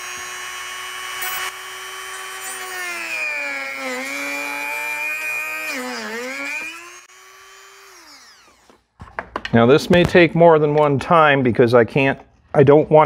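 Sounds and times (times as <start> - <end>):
rotary tool cutting plastic: 0.0 - 8.8.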